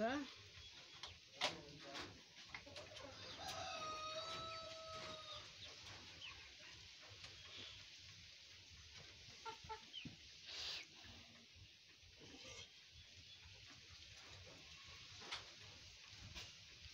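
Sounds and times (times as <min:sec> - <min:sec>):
rooster crowing: 0:03.1 - 0:05.6.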